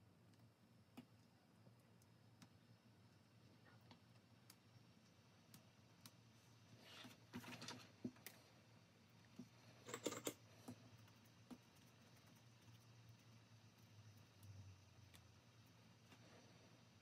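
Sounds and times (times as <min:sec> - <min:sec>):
low steady hum: 0:00.0 - 0:17.0
faint scattered clicks: 0:09.4 - 0:16.2
rapid clicking and rattling: 0:09.8 - 0:14.6.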